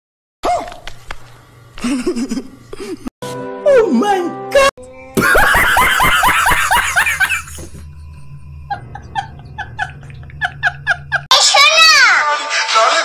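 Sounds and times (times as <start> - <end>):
man laughing loudly: 1.8 - 3.1, 5.2 - 7.9, 8.7 - 11.3
low steady hum: 5.2 - 11.3.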